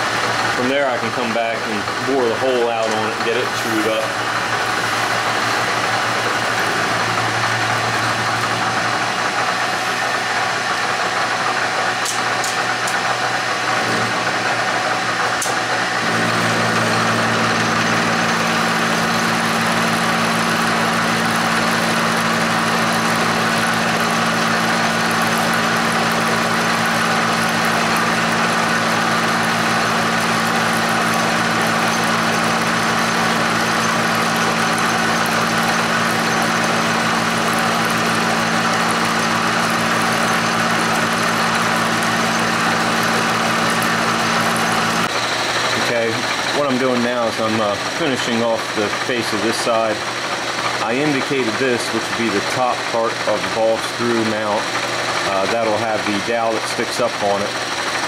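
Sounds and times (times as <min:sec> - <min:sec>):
milling machine motor hum: 0:00.0 - 0:58.0.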